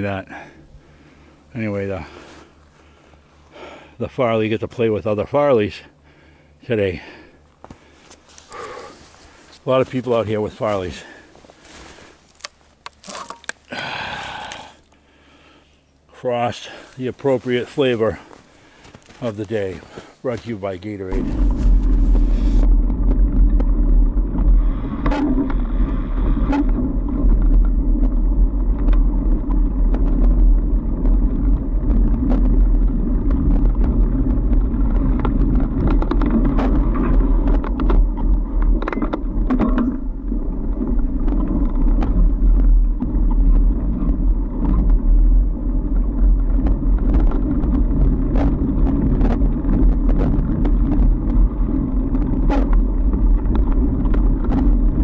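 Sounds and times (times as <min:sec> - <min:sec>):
bike tyres rumbling on snow: 0:00.0 - 0:05.4, 0:06.0 - 0:12.7, 0:13.7 - 0:15.6, 0:16.2 - 0:55.0
bike clicks and knocks: 0:33.2 - 0:45.1, 0:52.1 - 0:55.0.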